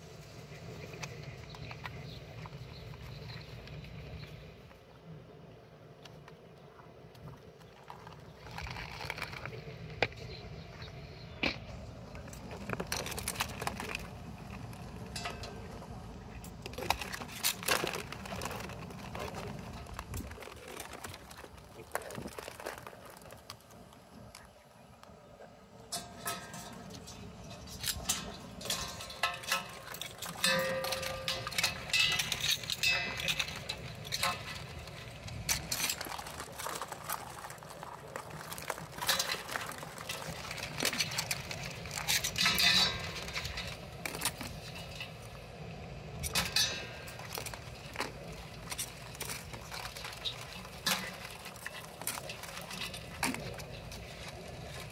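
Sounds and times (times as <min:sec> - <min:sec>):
metal tongs clinking: 0:26.0 - 0:34.5.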